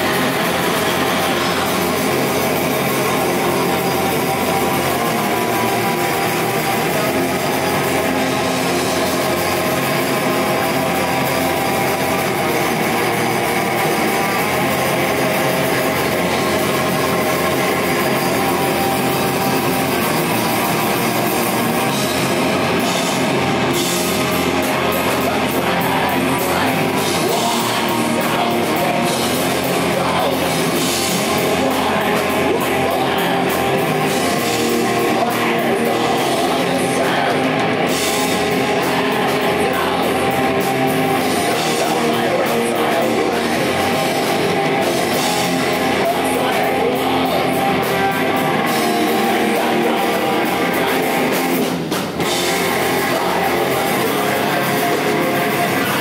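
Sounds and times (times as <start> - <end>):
bass guitar: 0.0 - 56.0
distorted electric guitars: 0.0 - 56.0
drum kit: 0.0 - 56.0.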